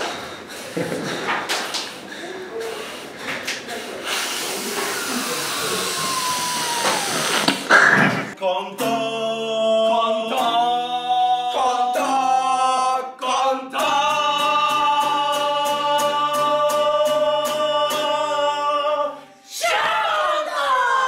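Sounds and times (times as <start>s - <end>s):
choir singing held chords: 8.0s - 21.0s.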